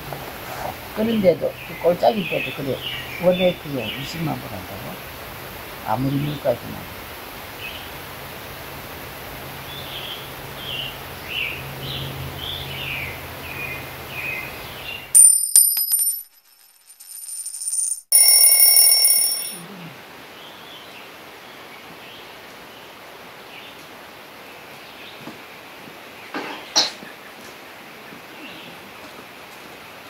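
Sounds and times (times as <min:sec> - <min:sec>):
bell ding: 0:18.1 - 0:19.6.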